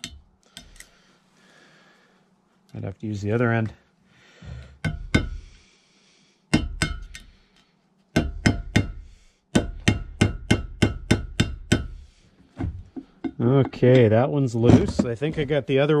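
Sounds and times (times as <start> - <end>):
hammer tapping metal with ring: 4.8 - 5.4, 6.5 - 7.2, 8.1 - 11.9.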